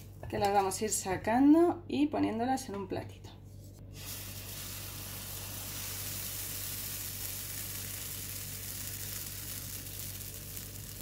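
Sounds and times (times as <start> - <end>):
batter sizzling in frying pan: 3.9 - 11.0.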